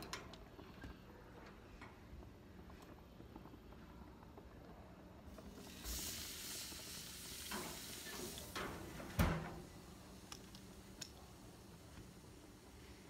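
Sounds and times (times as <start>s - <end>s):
meat sizzling on grill: 5.3s - 13.0s.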